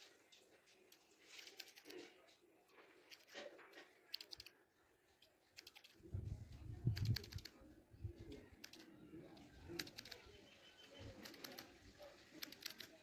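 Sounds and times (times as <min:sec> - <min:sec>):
scissors snipping hair: 0:05.6 - 0:05.9, 0:12.4 - 0:12.9.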